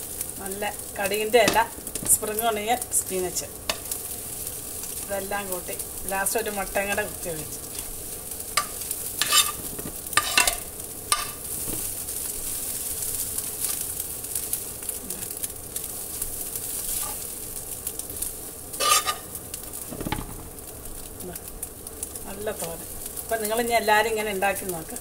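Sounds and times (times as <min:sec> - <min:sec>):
food sizzling in frying pan: 0:00.0 - 0:25.0
metal spoon scraping pan: 0:08.6 - 0:11.4, 0:16.9 - 0:17.2, 0:18.8 - 0:19.3.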